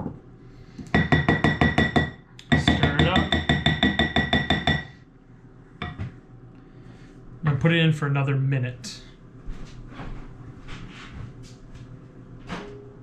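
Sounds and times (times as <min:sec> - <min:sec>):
wooden spoon knocking against bowl: 0:01.0 - 0:04.9, 0:05.8 - 0:06.2.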